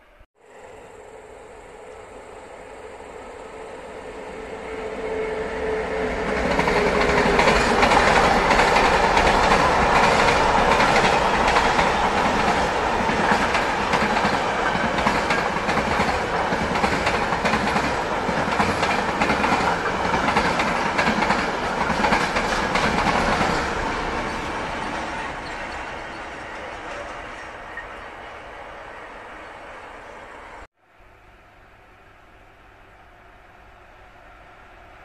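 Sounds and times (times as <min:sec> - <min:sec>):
freight train rolling past: 0:00.0 - 0:30.7
wheels clacking over rail joints: 0:06.5 - 0:28.4.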